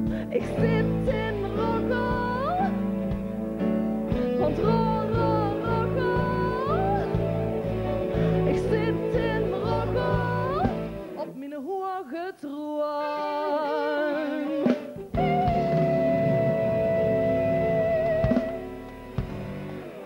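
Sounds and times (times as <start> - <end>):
woman singing into a microphone: 0.0 - 3.3, 4.4 - 18.5
band playing: 0.0 - 11.2, 13.4 - 20.0.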